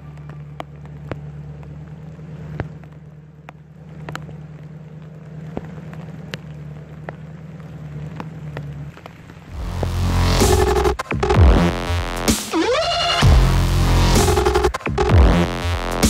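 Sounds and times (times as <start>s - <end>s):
rain falling: 0.0s - 16.0s
steady low hum: 9.5s - 12.3s.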